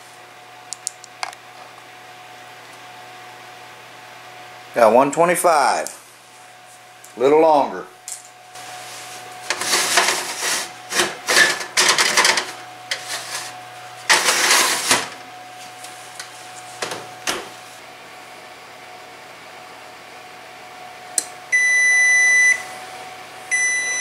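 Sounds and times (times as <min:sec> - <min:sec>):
oven rack and baking sheet clattering: 0:09.4 - 0:15.2.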